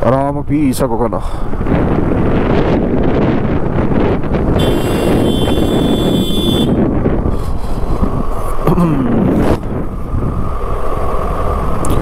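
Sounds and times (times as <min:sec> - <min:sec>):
road noise: 0:00.0 - 0:12.0
wind rushing over microphone: 0:00.0 - 0:12.0.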